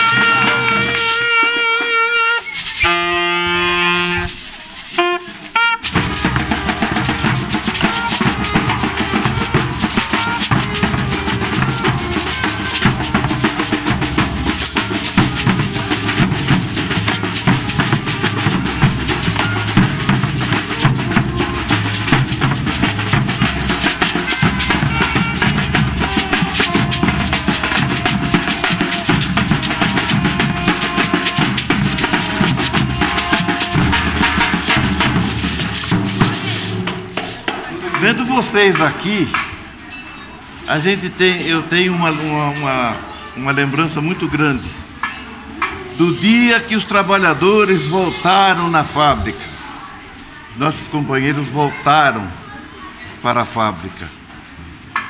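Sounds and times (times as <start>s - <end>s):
saxophone held notes: 0.0s - 35.2s
street band drum groove: 0.0s - 39.9s, 40.6s - 49.6s
shakers: 0.0s - 41.1s.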